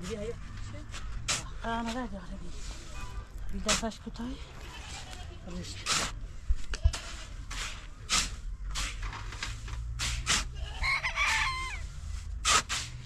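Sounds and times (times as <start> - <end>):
shovels scraping sand and cement: 0.0 - 13.0
rooster crowing: 10.6 - 11.9.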